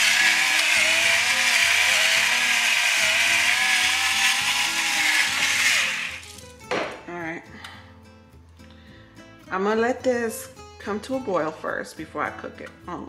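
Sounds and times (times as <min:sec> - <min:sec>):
electric pepper grinder whining: 0:00.0 - 0:06.5.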